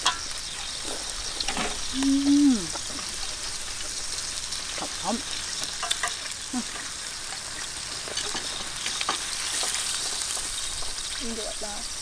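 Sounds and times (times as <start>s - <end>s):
beef sizzling on a grill pan: 0.0s - 12.0s
utensils clicking against pan: 5.6s - 11.0s.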